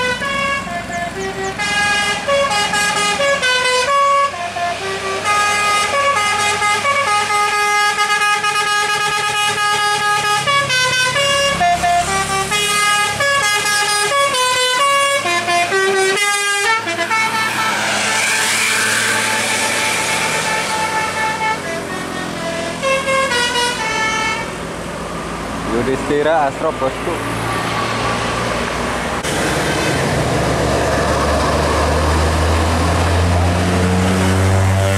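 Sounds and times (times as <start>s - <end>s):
multi-tone bus horn melody: 0.0s - 24.8s, 29.3s - 30.5s, 33.7s - 34.9s
bus passing rush: 0.0s - 34.9s.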